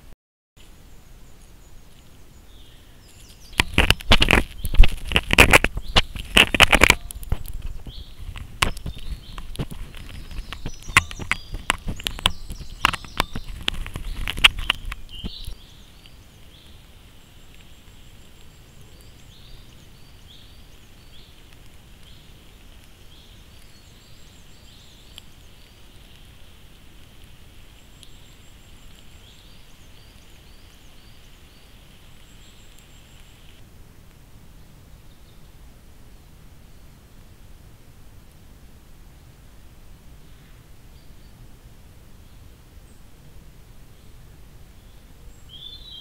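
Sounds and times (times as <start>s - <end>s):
steady hiss: 0.0s - 46.0s
small birds chirping: 0.6s - 37.5s, 40.1s - 46.0s
loud crackling and clicks: 3.3s - 19.8s, 20.8s - 34.2s.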